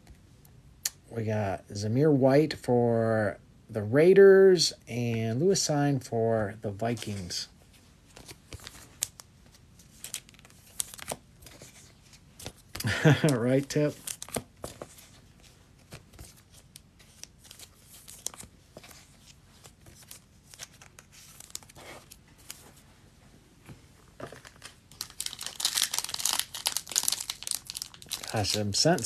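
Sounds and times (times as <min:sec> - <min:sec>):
wrapper torn and crinkled: 0:24.4 - 0:29.0.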